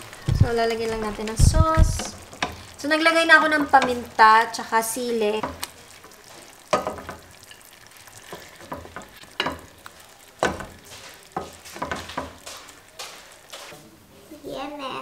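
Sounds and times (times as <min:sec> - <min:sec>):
faint sauce sizzle: 0:00.0 - 0:15.0
ladle clinking in pan: 0:06.6 - 0:07.7.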